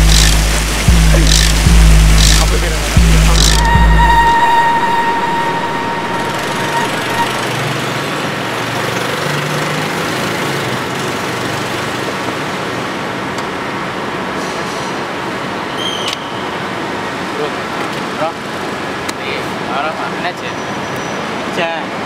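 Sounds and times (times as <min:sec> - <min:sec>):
city traffic noise: 0:00.0 - 0:22.0
faint held tone: 0:03.2 - 0:07.8.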